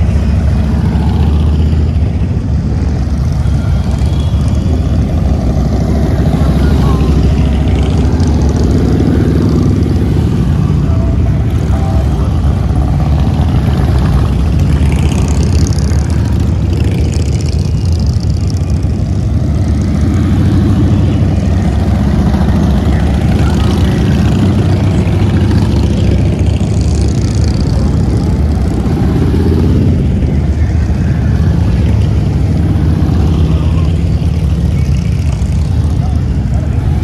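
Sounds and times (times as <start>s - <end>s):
motorcycles passing: 0.0s - 37.0s.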